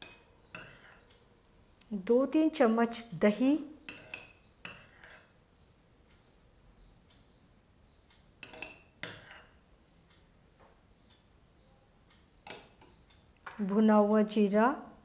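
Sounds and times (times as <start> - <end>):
spoon clinking on ceramic bowl: 3.9 - 5.2, 8.4 - 9.6.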